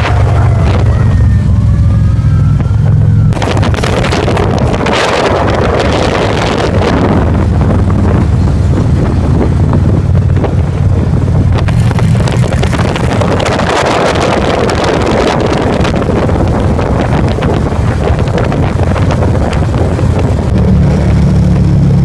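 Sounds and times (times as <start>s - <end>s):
motorcycle engines droning: 0.0s - 22.0s
wind buffeting microphone: 0.0s - 22.0s.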